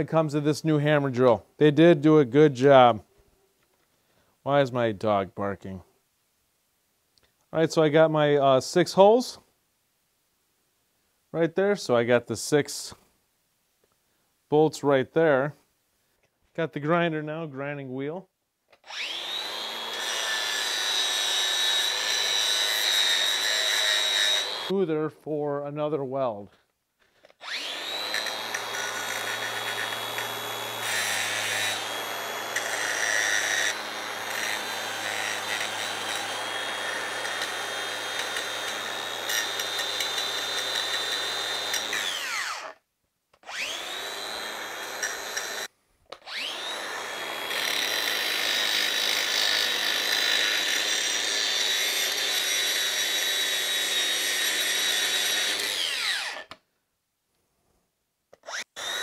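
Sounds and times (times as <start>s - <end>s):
angle grinder motor whine: 18.8s - 24.7s, 27.4s - 42.8s, 43.4s - 56.5s, 58.4s - 59.0s.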